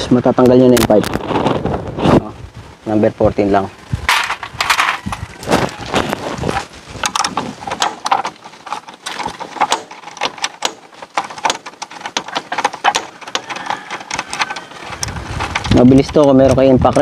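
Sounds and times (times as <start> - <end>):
hand ratchet clicking: 7.0 - 17.0.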